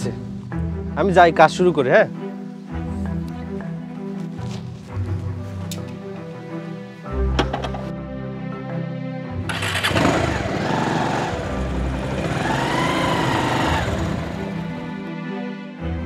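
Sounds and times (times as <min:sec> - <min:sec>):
background music: 0:00.0 - 0:16.0
motorcycle engine revving: 0:09.5 - 0:15.0.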